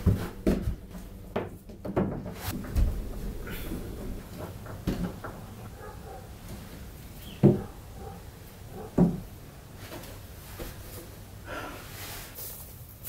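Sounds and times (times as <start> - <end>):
window knocking shut on wooden frame: 9.0 - 9.3.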